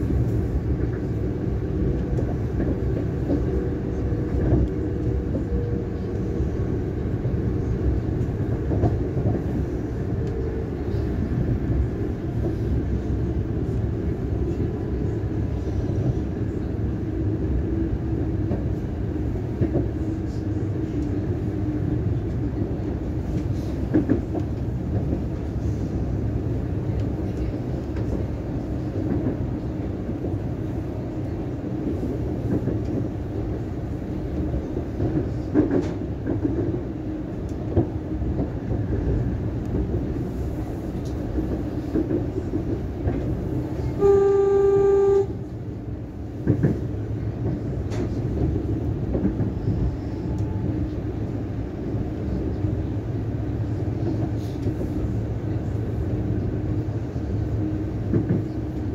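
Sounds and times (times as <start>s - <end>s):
train wheels and motors rumbling: 0.0s - 58.9s
train horn: 43.8s - 45.5s.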